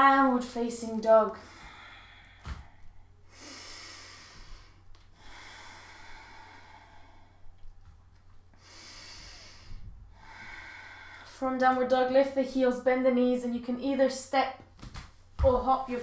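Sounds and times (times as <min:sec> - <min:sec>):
person breathing slowly: 0:01.4 - 0:07.8, 0:08.5 - 0:11.4.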